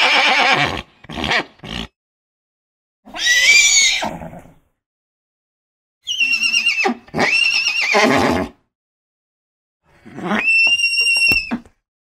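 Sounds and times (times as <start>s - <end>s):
horse whinnying: 0.0s - 1.9s, 3.1s - 4.6s, 6.1s - 8.6s, 10.0s - 11.8s.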